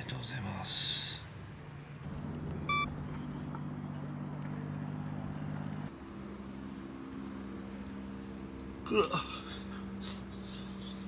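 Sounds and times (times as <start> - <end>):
low mechanical hum: 1.6 - 11.0
short electronic beep: 2.7 - 2.9.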